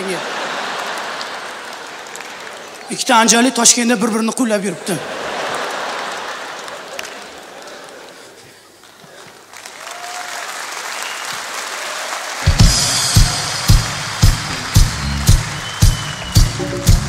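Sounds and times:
audience laughing: 0.0 - 2.6, 4.8 - 9.3
audience applauding: 0.0 - 3.4, 5.2 - 17.0
music with heavy kick-drum beat: 12.5 - 17.0.

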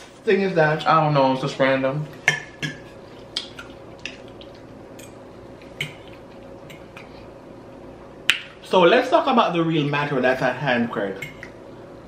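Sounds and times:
chewing with wet smacks: 3.3 - 7.2.

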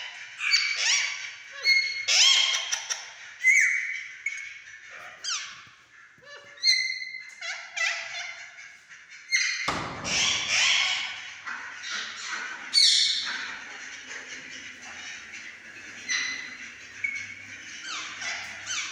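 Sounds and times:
parakeets screeching: 0.0 - 18.9
thump: 9.7 - 10.4.

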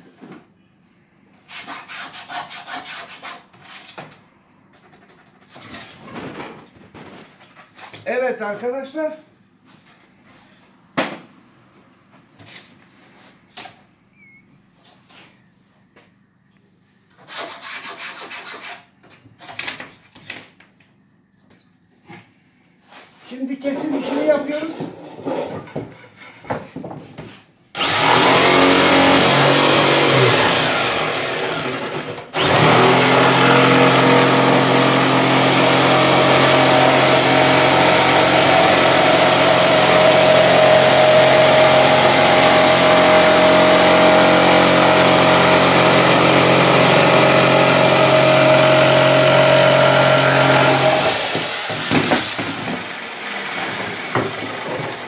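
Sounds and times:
electric jigsaw cutting board: 27.8 - 55.0.

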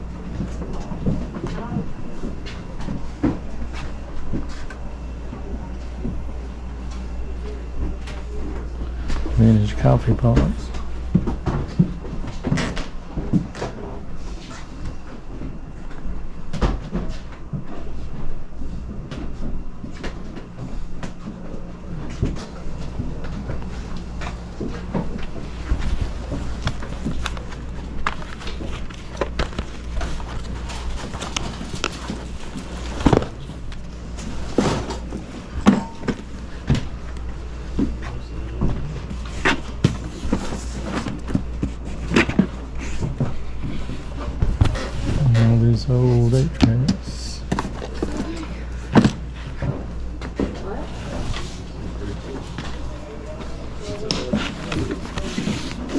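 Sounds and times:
low hum: 17.8 - 55.9.

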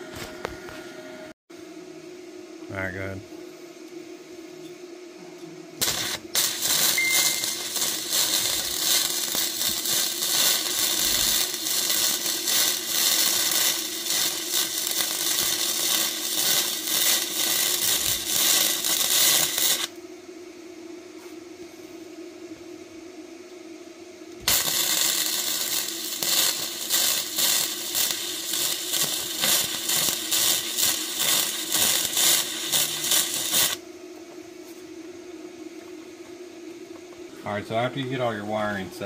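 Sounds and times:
welding arc crackling: 5.8 - 20.0, 24.4 - 33.8.

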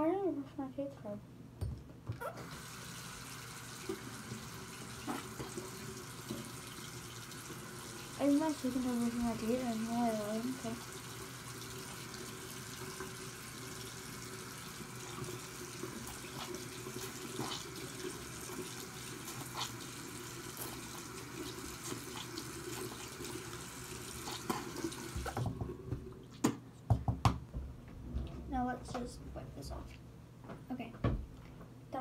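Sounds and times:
sink tap running: 2.3 - 26.1.

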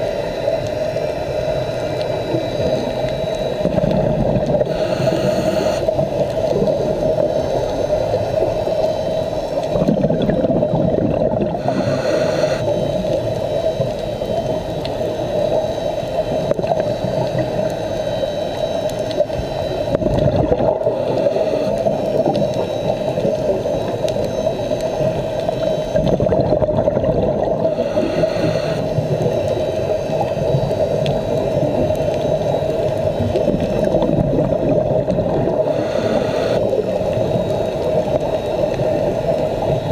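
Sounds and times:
diver's bubbles gurgling underwater: 1.4 - 39.9
regulator breathing hiss: 4.6 - 6.0, 11.5 - 12.9, 20.8 - 22.1, 27.6 - 30.0, 35.5 - 37.0.

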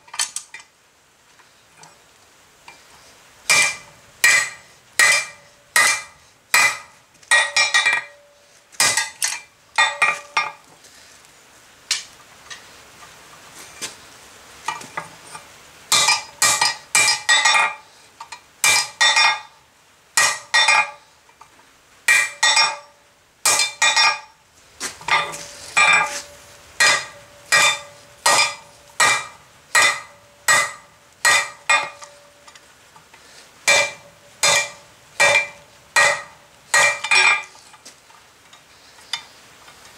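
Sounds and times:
hammer striking steel on anvil: 3.5 - 10.6, 15.9 - 17.8, 18.6 - 19.5, 20.2 - 21.0, 22.1 - 24.3, 25.1 - 32.6, 33.7 - 37.5.

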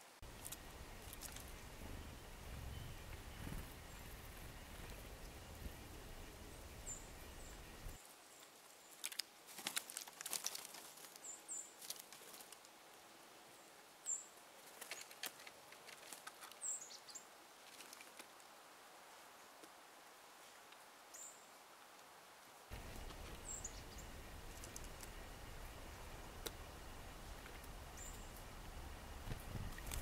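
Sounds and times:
squirrel cracking and chewing seeds: 0.2 - 5.0, 8.9 - 11.2, 22.7 - 28.6
small birds calling: 0.2 - 9.1, 13.6 - 18.2, 22.7 - 30.0.

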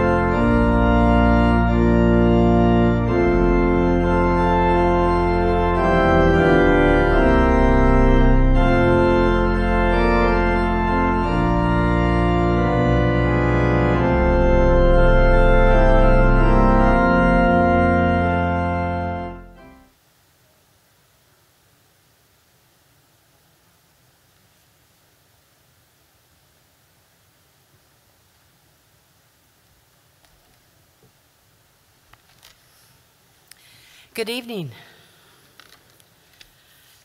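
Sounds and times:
organ playing slow chords: 0.0 - 19.9.

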